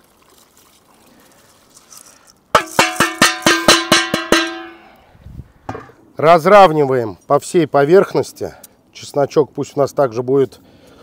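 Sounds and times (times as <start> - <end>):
metal bowl knocking on iron pot: 2.6 - 4.9.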